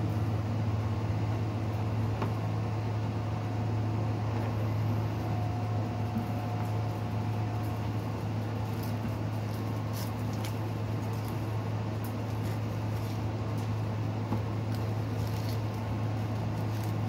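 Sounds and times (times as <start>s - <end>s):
low hum: 0.0s - 17.0s
onion skin crackling: 7.4s - 17.0s.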